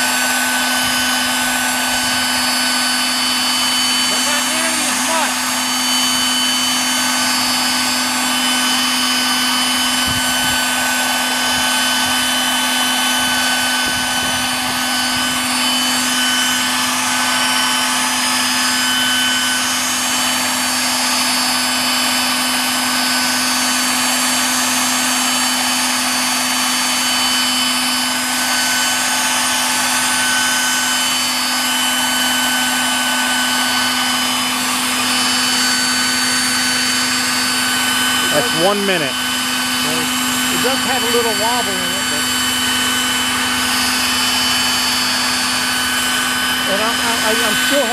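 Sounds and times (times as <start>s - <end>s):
model helicopter hovering: 0.0s - 47.9s.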